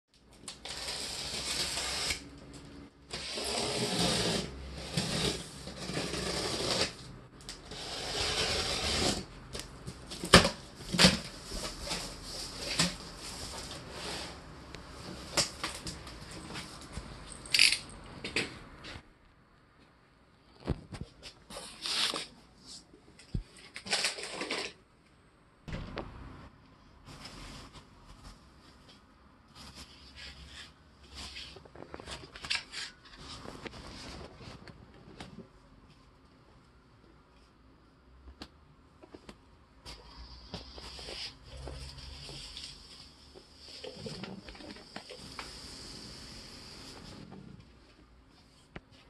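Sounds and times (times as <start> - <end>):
utility knife cutting packing tape: 0.6 - 2.2.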